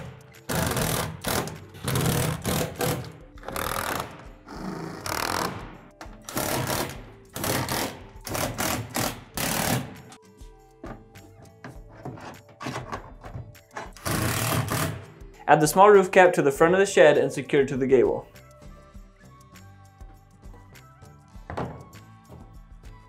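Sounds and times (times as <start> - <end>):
power drill driving screws: 0.5 - 5.6, 6.2 - 9.9, 14.0 - 15.0.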